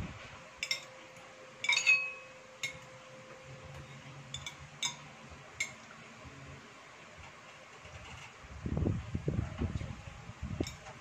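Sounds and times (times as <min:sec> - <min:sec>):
cutlery clinking on plates: 0:00.6 - 0:01.0, 0:01.6 - 0:02.8, 0:03.8 - 0:05.8.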